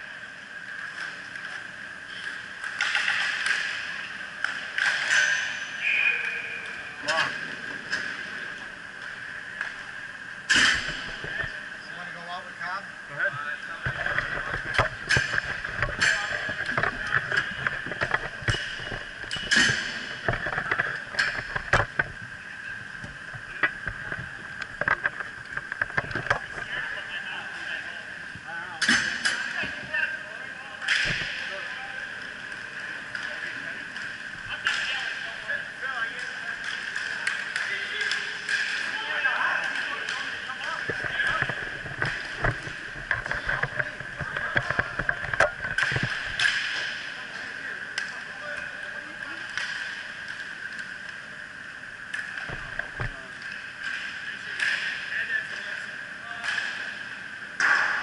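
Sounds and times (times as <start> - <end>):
hockey sticks and puck clacking: 2.1 - 8.3, 13.8 - 22.6, 32.5 - 51.2, 52.1 - 58.0
steady high whine: 3.4 - 58.0.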